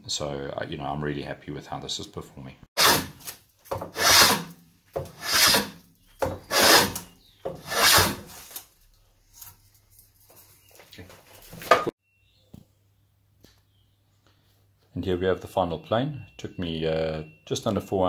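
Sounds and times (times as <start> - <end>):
hand plane shaving wood: 3.9 - 4.5, 5.1 - 5.8, 6.4 - 7.0, 7.6 - 8.4.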